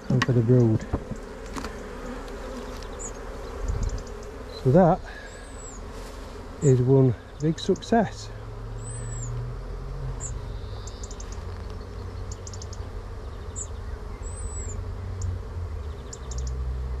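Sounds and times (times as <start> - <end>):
honeybees buzzing: 0.0 - 17.0
small bird chirping and trilling: 2.8 - 4.7, 8.8 - 9.4, 10.2 - 16.6.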